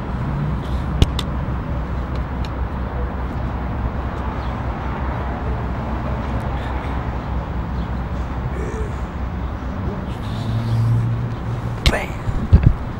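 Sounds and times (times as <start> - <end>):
outdoor hum: 0.0 - 12.9
traffic rumble: 0.0 - 12.9.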